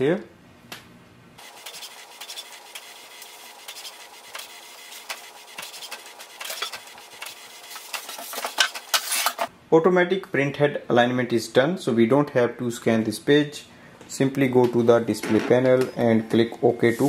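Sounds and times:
printer motor hum: 0:01.4 - 0:08.3
print head clicking and rubbing: 0:01.4 - 0:09.5.

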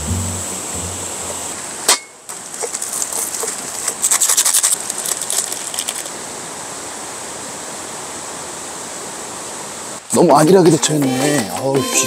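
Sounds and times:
mountain stream rushing: 0:00.0 - 0:12.0.

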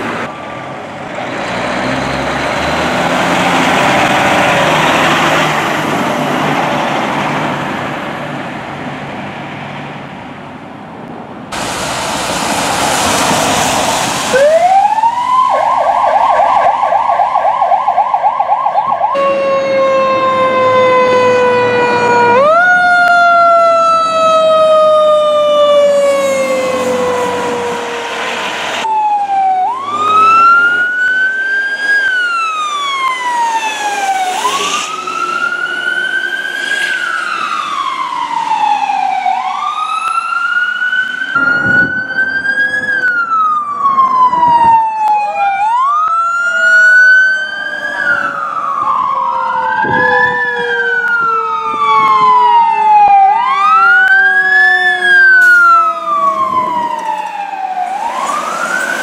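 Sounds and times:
fire truck siren wailing: 0:00.0 - 0:09.3, 0:11.5 - 0:59.0
lower siren tone sliding down: 0:12.9 - 0:59.0.

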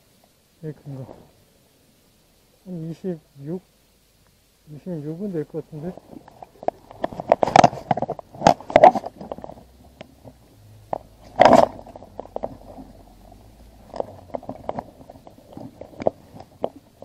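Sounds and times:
waterproof jacket rustling: 0:05.8 - 0:09.6
water splashing in bucket: 0:11.1 - 0:17.0.

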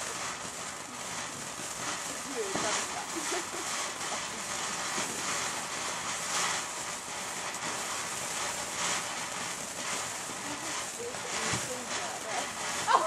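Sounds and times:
firework fountain hissing: 0:00.0 - 0:13.0.

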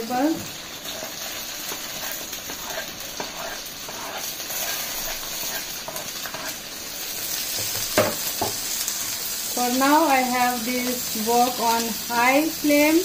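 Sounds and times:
vegetables sizzling in hot oil: 0:00.0 - 0:13.0
wooden spatula scraping wok: 0:00.3 - 0:09.2.

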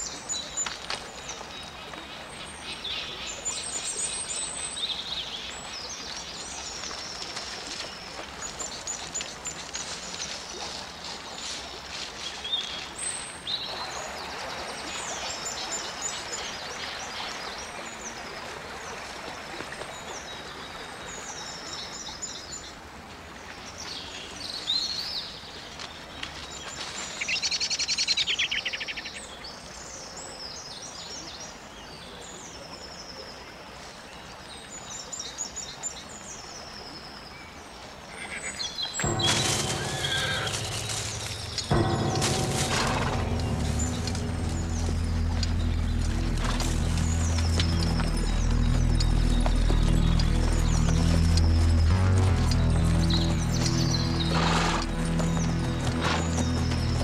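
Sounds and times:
stream running water: 0:00.0 - 0:57.0
birds chirping and whistling: 0:52.6 - 0:57.0.

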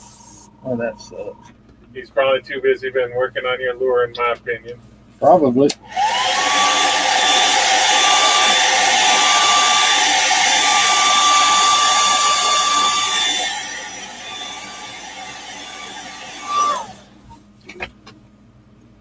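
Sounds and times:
hair dryer blowing: 0:05.8 - 0:17.2.

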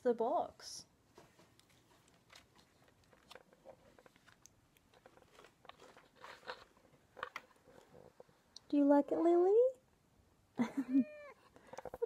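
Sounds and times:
cat chewing cardboard: 0:01.5 - 0:08.3.

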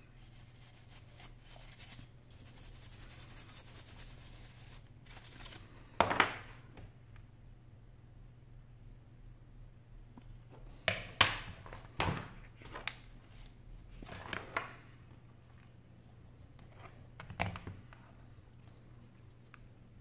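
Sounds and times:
low steady hum: 0:00.0 - 0:20.0
rubbing sounds: 0:00.2 - 0:05.6.

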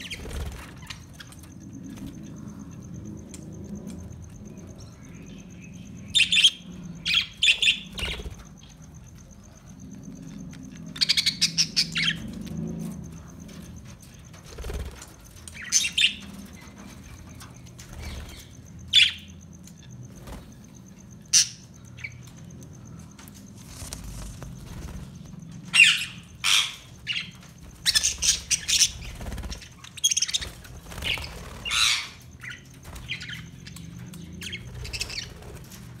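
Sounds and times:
budgerigars chirping: 0:25.8 - 0:27.3, 0:27.9 - 0:33.8.

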